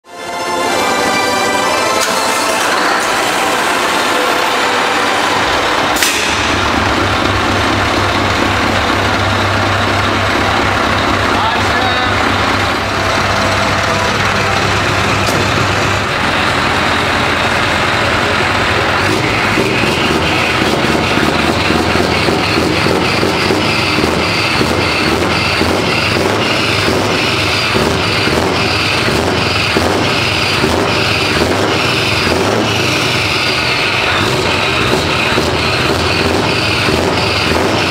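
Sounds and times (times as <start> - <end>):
diesel engine idling: 0.4 - 37.9
sharp click: 6.0 - 6.4.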